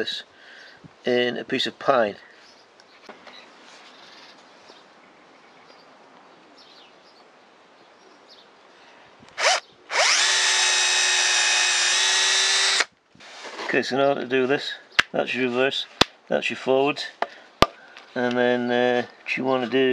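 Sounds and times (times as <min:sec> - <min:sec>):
cordless drill whining: 0:09.4 - 0:12.9.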